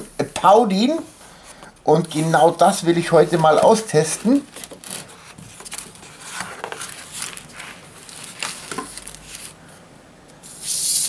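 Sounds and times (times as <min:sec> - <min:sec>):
cardboard box rustling: 0:03.1 - 0:09.6.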